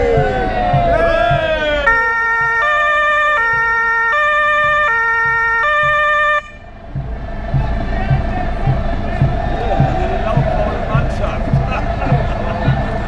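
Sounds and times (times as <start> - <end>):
two-tone fire siren: 0.1 - 6.7.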